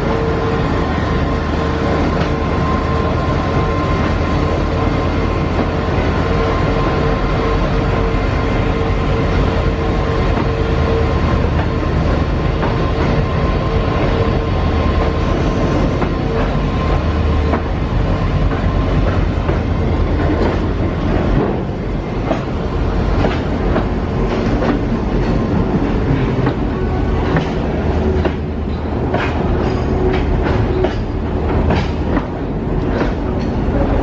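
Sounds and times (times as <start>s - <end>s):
diesel locomotive rumble and whine: 0.0s - 34.0s
train wheels clicking over rail joints: 15.0s - 34.0s.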